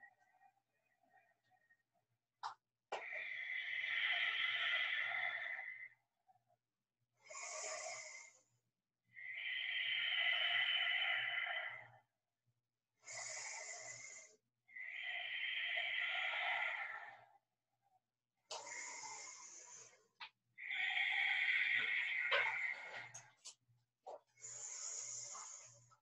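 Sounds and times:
woman breathing deeply: 9.2 - 12.0, 13.0 - 17.4, 18.5 - 20.0, 24.4 - 26.0.

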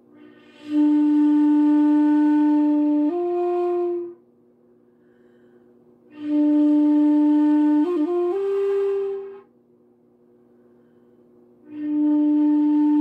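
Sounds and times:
shakuhachi flute notes: 0.0 - 4.3, 6.1 - 9.5, 11.6 - 13.0.

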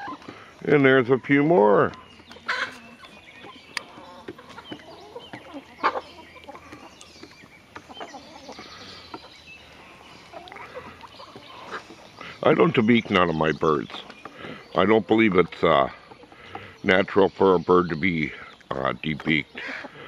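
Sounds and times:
hens clucking softly: 0.0 - 13.3, 13.9 - 17.0, 18.2 - 20.0.

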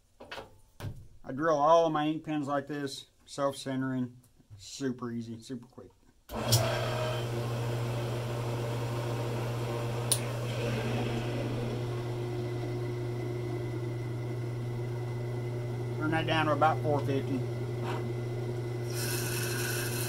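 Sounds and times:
lathe motor humming: 6.3 - 20.0.

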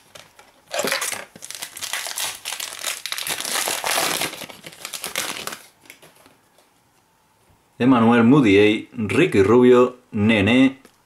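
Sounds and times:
foil wrapper crinkling: 0.0 - 6.4.

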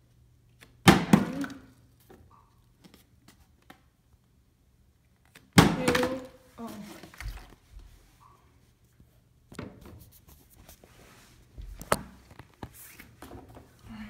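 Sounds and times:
plastic water bottle handled: 5.9 - 7.6.

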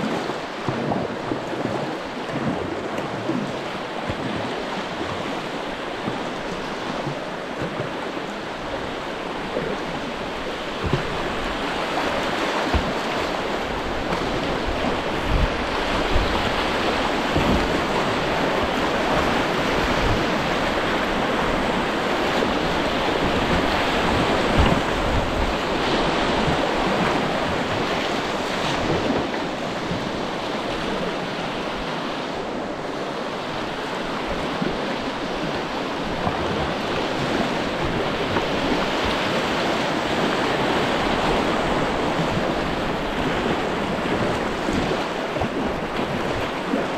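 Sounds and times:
rushing white water: 0.0 - 46.9
water splashing over kayak bow: 0.0 - 46.9
wind buffeting microphone: 0.0 - 46.9.

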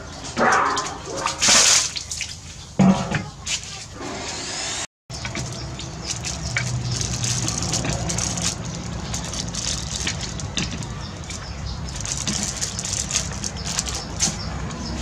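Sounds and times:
plastic bag crinkling: 5.3 - 14.4.

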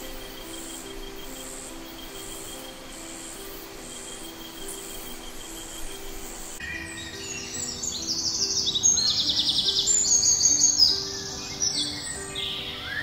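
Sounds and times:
insects chirping: 0.0 - 13.0
thin insect trill: 0.0 - 13.0.

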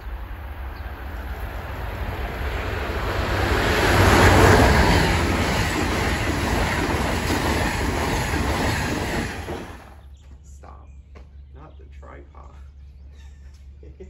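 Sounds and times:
passenger train passing: 0.0 - 10.1.

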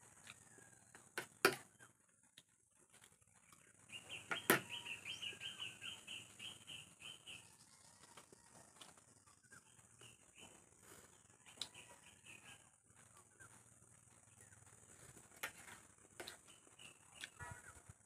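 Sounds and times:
bird chirping: 3.2 - 8.1, 9.0 - 18.0.

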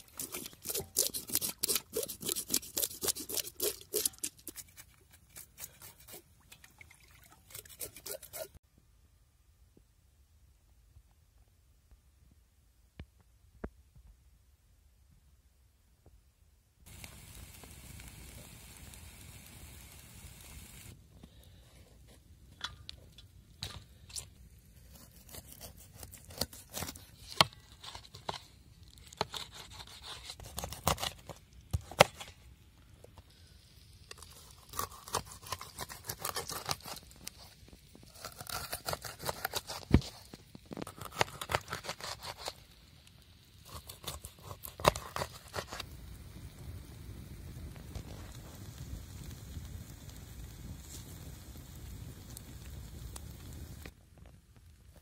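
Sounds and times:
knife cutting through fish: 0.0 - 6.3, 7.5 - 8.6, 24.9 - 28.4, 29.1 - 31.2, 34.5 - 37.4, 38.1 - 40.3, 40.9 - 42.6, 43.7 - 45.8
wood fire hissing: 16.9 - 22.4, 45.8 - 54.0.

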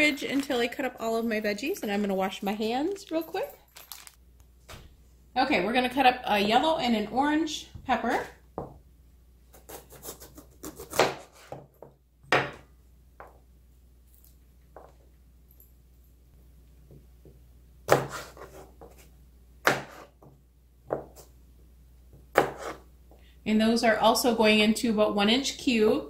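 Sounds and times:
knife cutting on plastic board: 22.3 - 22.9.

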